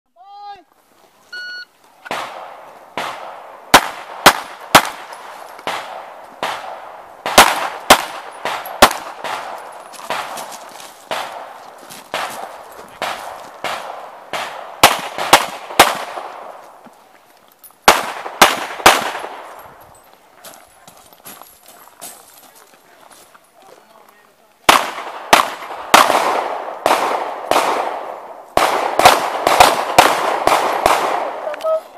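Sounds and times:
pistol shots: 2.0s - 16.6s, 17.8s - 19.6s, 24.7s - 31.7s
faint distant gunshots: 2.1s - 16.6s, 17.8s - 19.6s, 24.6s - 31.6s.

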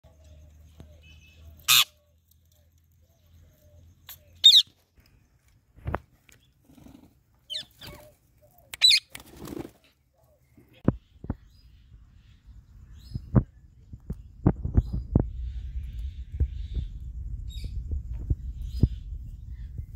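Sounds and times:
parrots squawking and screeching: 1.6s - 2.0s, 4.4s - 4.7s, 6.8s - 8.2s, 8.8s - 9.0s.

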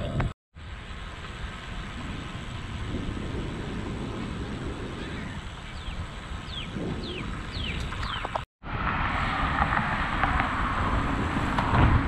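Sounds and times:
wind rumble on microphone: 0.0s - 12.0s
bicycle tyre hum on pavement: 0.6s - 12.0s
bird whistling: 5.1s - 8.2s.

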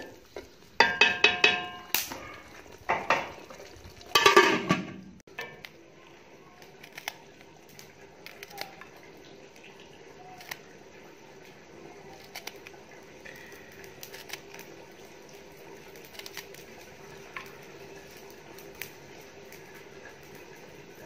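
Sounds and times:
leaves dropping onto steel plate: 0.8s - 3.4s, 4.0s - 5.8s.

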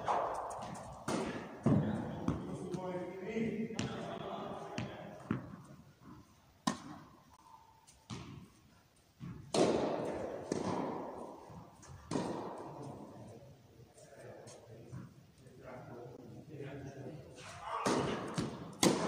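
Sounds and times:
tennis ball hits echoing indoors: 0.0s - 13.3s, 17.6s - 19.0s.

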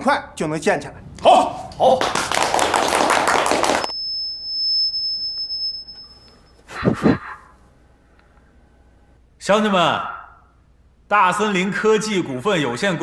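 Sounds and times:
people applauding: 1.7s - 3.9s
high steady beep: 3.9s - 6.6s.

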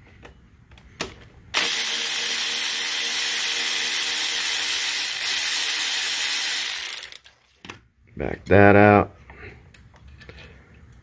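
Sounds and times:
electric ratchet motor running: 1.6s - 7.3s.

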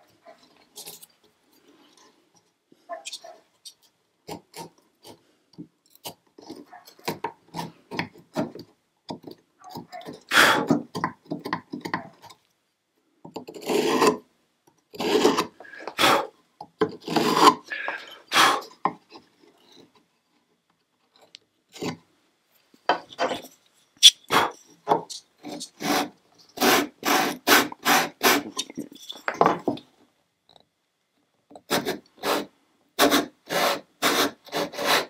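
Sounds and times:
chisel scraping wood: 4.2s - 5.2s, 5.9s - 8.7s, 13.4s - 14.2s, 14.9s - 16.2s, 16.8s - 19.0s, 23.1s - 29.4s, 31.7s - 35.0s.

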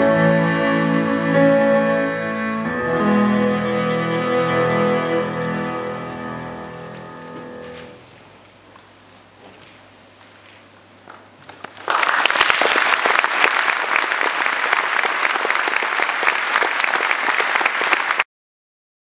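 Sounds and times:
audience applauding: 11.5s - 18.3s.

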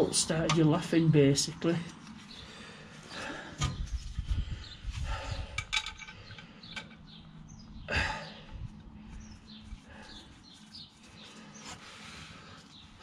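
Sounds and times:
gloved hands rustling: 8.7s - 13.0s.

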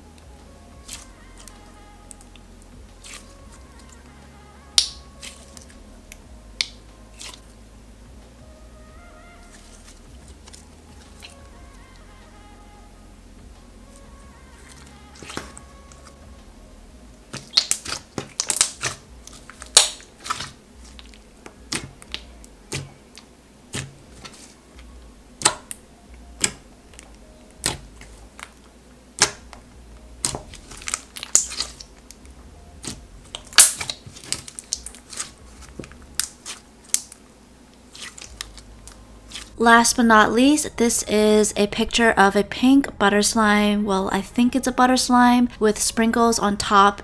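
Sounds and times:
slime squished by hand: 14.6s - 16.0s, 17.3s - 23.0s, 29.2s - 29.4s, 30.2s - 32.2s, 32.8s - 37.2s, 37.9s - 38.6s.

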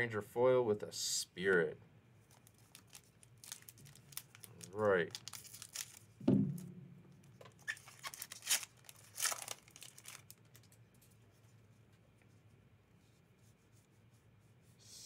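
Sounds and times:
foil wrapper crinkling: 2.3s - 6.2s, 7.6s - 10.8s
scissors cutting foil: 7.9s - 10.2s.

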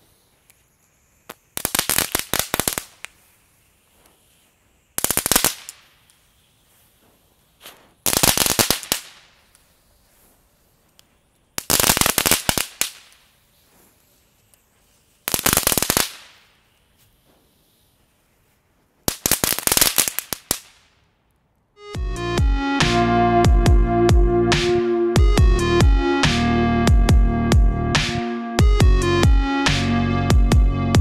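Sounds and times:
ground firework crackling: 0.0s - 21.8s.

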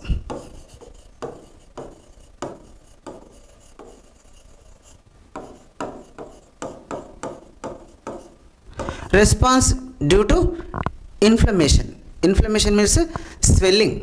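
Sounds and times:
pen scratching and tapping on board: 0.0s - 9.1s.

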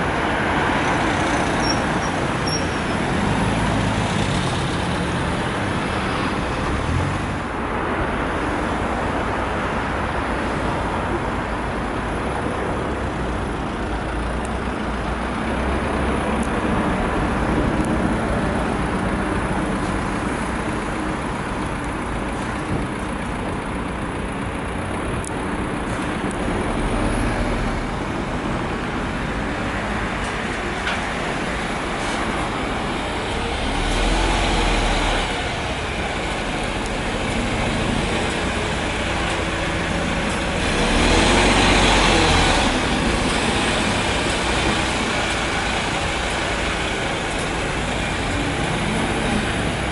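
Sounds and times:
bus engines passing: 0.0s - 49.9s
street traffic noise: 0.0s - 49.9s
coach engine rumble: 10.8s - 49.9s.

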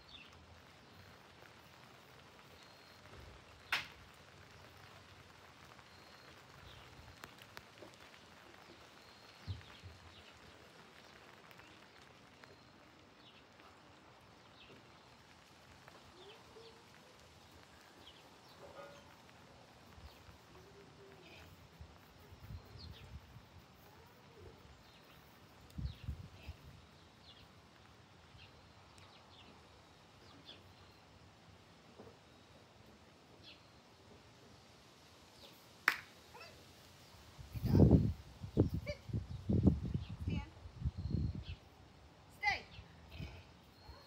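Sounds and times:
faint bird chirps: 5.7s - 10.7s, 11.5s - 31.2s, 37.5s - 44.0s.

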